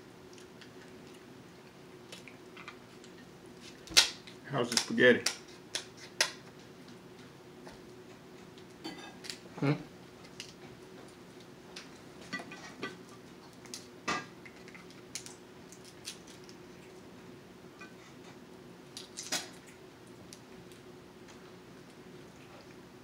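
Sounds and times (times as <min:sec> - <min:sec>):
faint steady hum: 0:00.0 - 0:23.0
crab shells cracking and snapping: 0:03.8 - 0:06.5, 0:08.6 - 0:09.4, 0:10.2 - 0:10.6, 0:13.4 - 0:16.8, 0:18.9 - 0:22.0.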